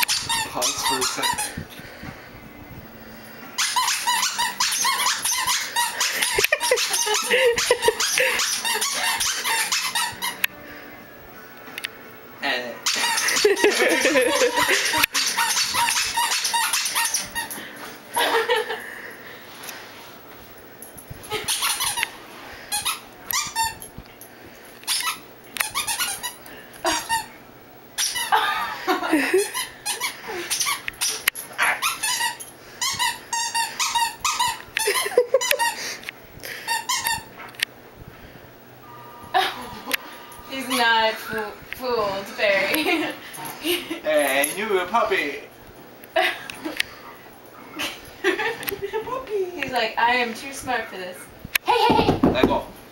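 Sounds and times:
squeaky dog toy squeaks: 0.0 - 1.6, 3.6 - 10.4, 12.8 - 13.7, 14.4 - 17.6, 21.3 - 22.1, 22.7 - 23.9, 24.9 - 27.3, 28.0 - 28.4, 29.5 - 31.2, 31.8 - 35.8, 36.6 - 37.3, 40.5 - 41.1.

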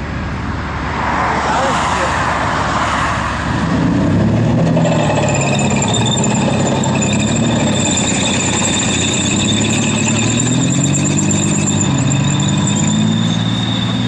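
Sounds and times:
diesel engines running: 3.4 - 14.0
tracks squealing: 4.2 - 14.0.

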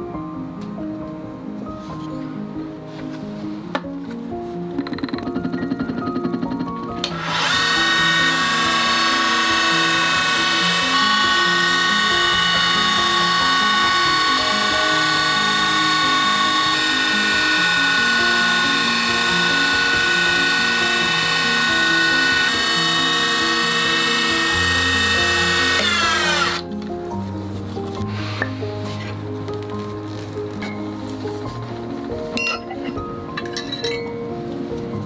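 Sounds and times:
background music: 0.0 - 35.0
wood lathe motor whine: 5.6 - 26.7.

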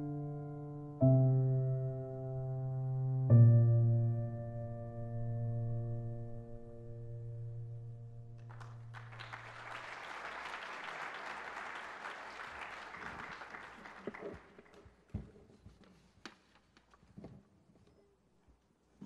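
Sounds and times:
audience applause: 8.5 - 15.0.

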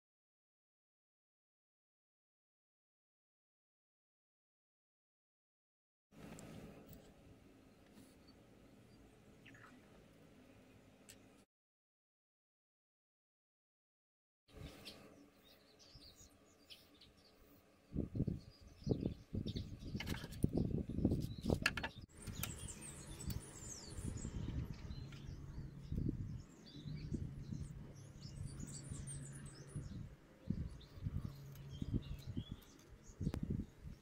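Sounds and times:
small birds chirping: 6.3 - 11.4, 14.5 - 34.0
knocks and clicks of wooden sticks: 21.5 - 22.0.

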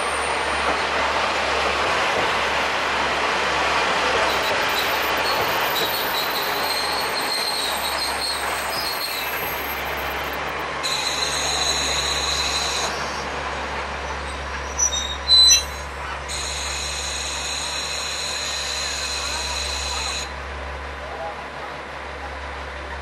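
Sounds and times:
train brakes squealing: 0.0 - 1.0, 4.1 - 20.4
diesel engine drone: 0.0 - 14.4
train rumbling: 0.0 - 23.0.

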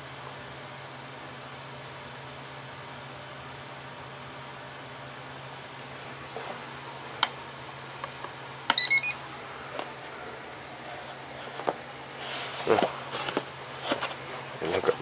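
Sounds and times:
electronic beep rising in pitch: 8.8 - 9.2.

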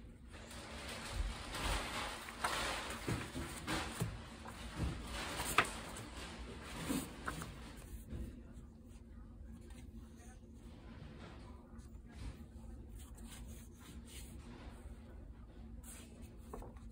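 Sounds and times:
paper notecards rustling: 0.5 - 8.2, 15.6 - 16.9.

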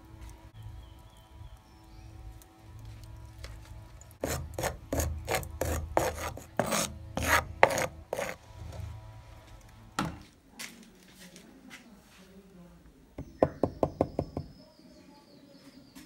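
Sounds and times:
wooden stirrer scraping spice powder: 2.9 - 9.0.

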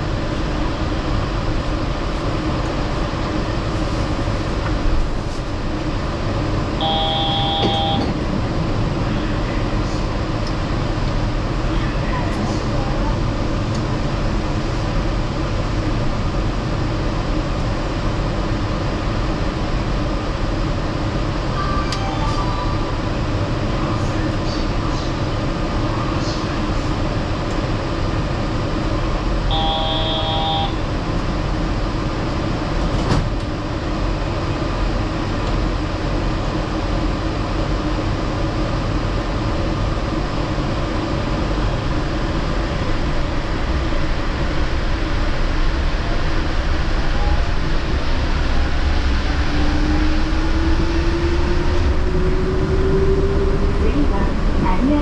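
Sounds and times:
multi-pitch tone: 6.8 - 8.1, 29.5 - 30.8
train rumbling on tyres: 26.6 - 55.0.

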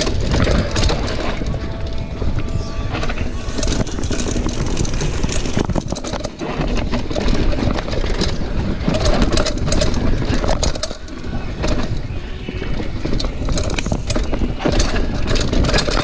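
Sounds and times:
bike rattles and knocks: 0.0 - 16.0
wind rumble on microphone: 0.0 - 16.0.

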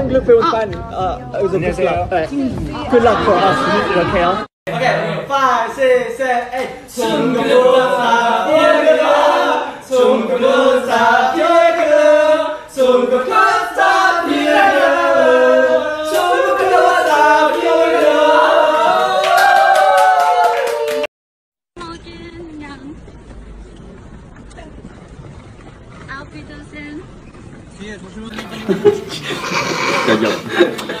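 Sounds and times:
young men singing unaccompanied: 6.6 - 19.2.

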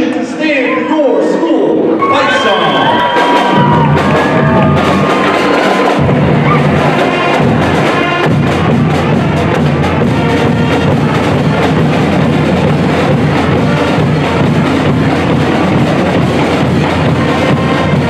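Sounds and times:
brass playing: 2.0 - 18.0
drumline playing: 2.0 - 18.0.

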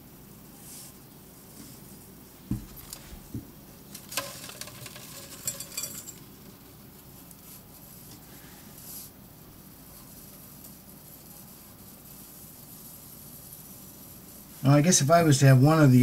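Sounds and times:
metallic clicking and clinking: 3.9 - 6.6.

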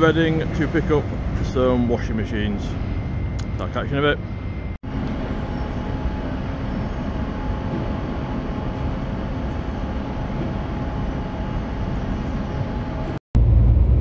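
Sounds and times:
deep engine rumble: 0.0 - 14.0
lorry engine running: 0.0 - 14.0.

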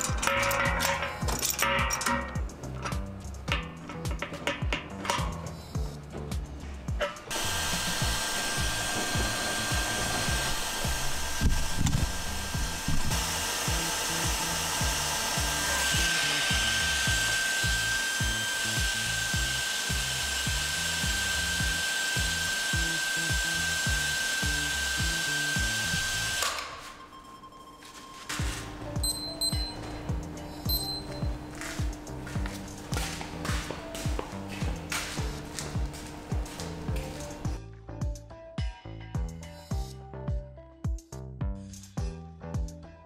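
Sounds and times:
background music: 0.0 - 43.0
mechanical running noise: 7.3 - 26.4.

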